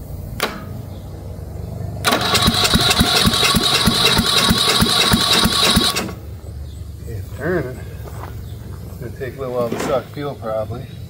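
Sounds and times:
starter motor cranking engine: 0:02.0 - 0:06.3.

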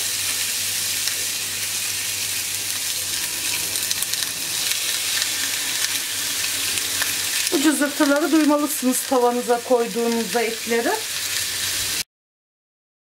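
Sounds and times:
steaks sizzling on grill pan: 0:00.0 - 0:12.0.

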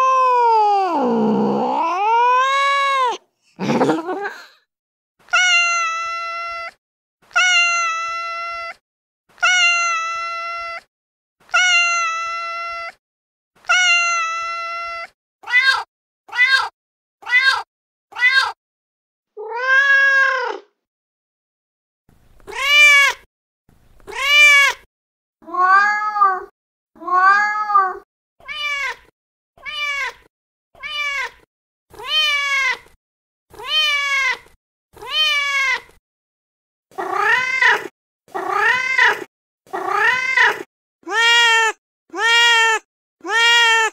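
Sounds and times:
recorded cat meows: 0:00.0 - 0:04.0, 0:05.3 - 0:08.8, 0:09.4 - 0:10.9, 0:11.5 - 0:13.0, 0:13.6 - 0:18.6, 0:19.3 - 0:20.8, 0:22.4 - 0:23.2, 0:24.0 - 0:36.0, 0:36.9 - 0:43.9.

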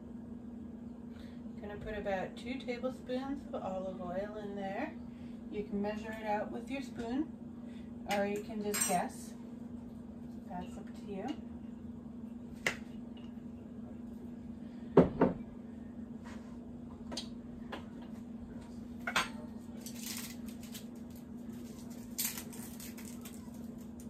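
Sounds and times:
steady low hum: 0:00.0 - 0:24.0
items knocked on countertop: 0:15.0 - 0:15.4.

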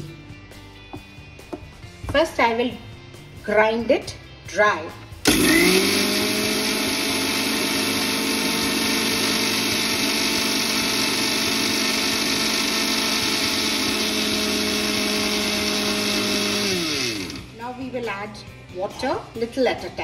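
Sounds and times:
mixer grinder motor whine: 0:05.2 - 0:17.6.

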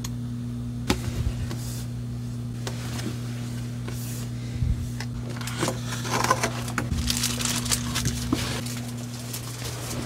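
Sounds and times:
steady low hum: 0:00.0 - 0:10.0
plastic wrap crinkling: 0:05.2 - 0:10.0.

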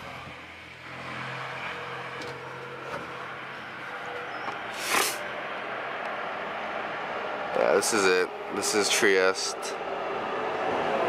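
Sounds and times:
city street traffic: 0:00.0 - 0:11.0
loud hiss: 0:04.7 - 0:05.2.

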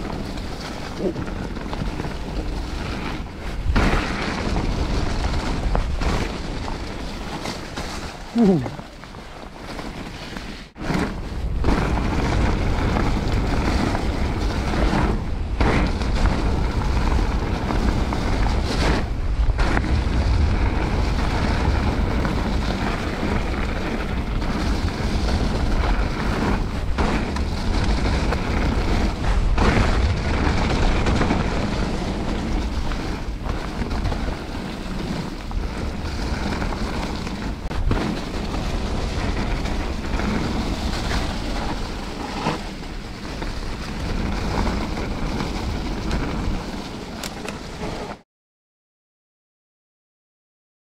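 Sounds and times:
bike tyres rolling over dirt trail: 0:00.0 - 0:48.2
wind buffeting microphone: 0:10.7 - 0:47.8.

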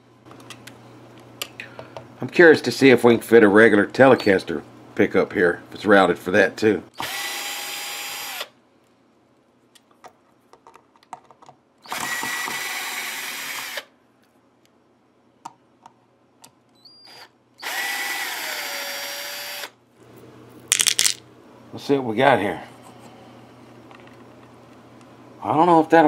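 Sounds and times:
drill-driver motor running: 0:07.0 - 0:08.5, 0:11.8 - 0:13.9, 0:17.1 - 0:19.8.

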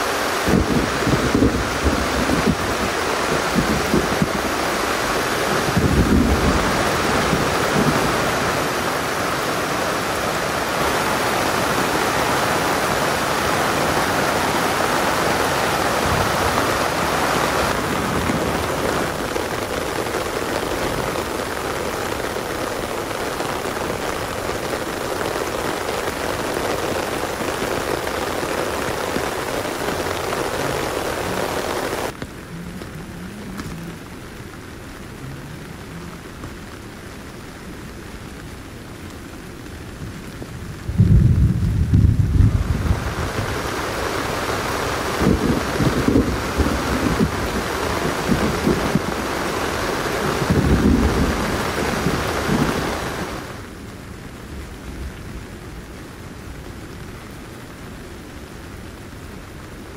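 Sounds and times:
heavy rain: 0:00.0 - 0:59.9
low rumble: 0:40.7 - 0:43.3.

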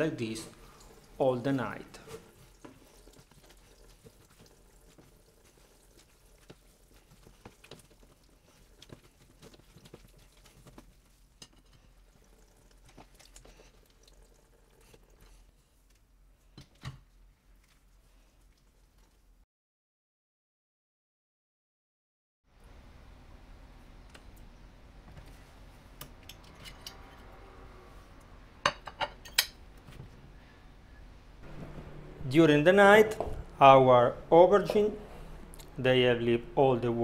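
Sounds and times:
wet squishing and dripping: 0:01.9 - 0:19.4.

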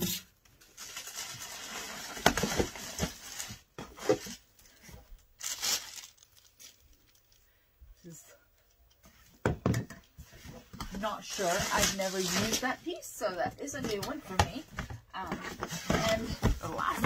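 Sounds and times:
plastic wrapping crinkling: 0:00.5 - 0:07.6, 0:11.0 - 0:13.0.

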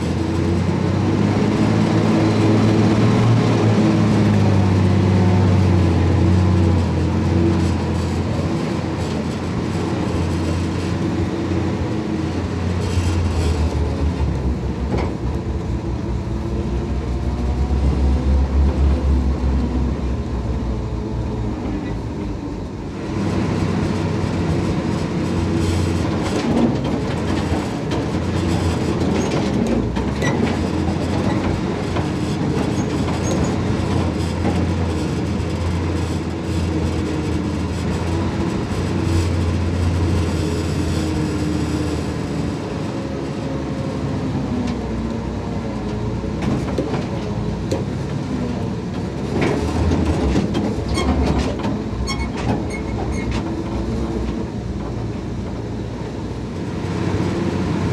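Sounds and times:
truck engine running: 0:00.0 - 0:42.6
truck body rattling and clanking: 0:25.2 - 0:41.4, 0:46.3 - 0:55.4.

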